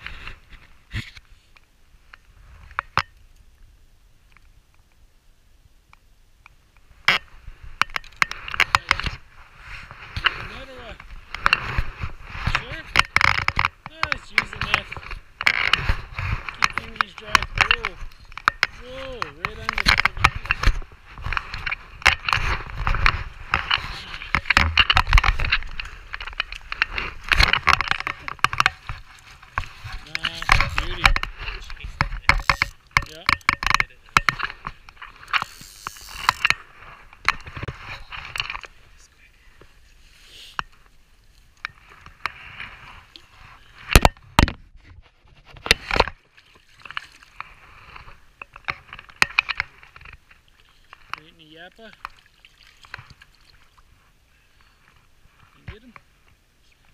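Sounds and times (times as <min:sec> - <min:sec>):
sharp crackling knocks: 0:11.3 - 0:35.5
water splashing and sloshing: 0:45.8 - 0:54.0.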